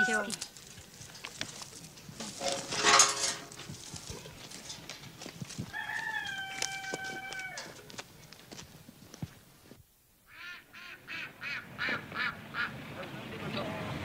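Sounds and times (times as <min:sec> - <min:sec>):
rooster crowing: 0:05.7 - 0:07.8.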